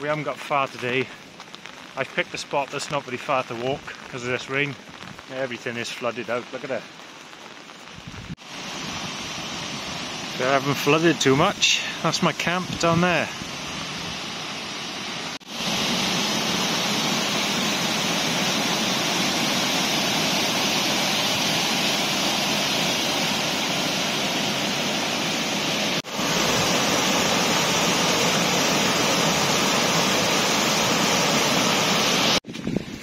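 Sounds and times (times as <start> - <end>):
rushing river water: 8.3 - 32.4.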